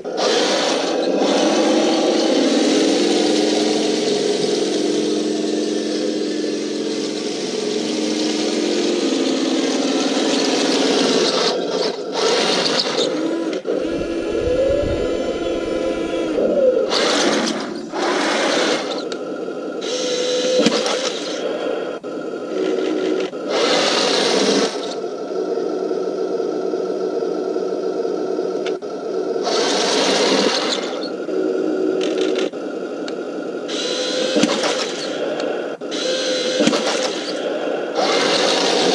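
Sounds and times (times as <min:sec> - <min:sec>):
model tank motors whirring: 0:00.0 - 0:38.9.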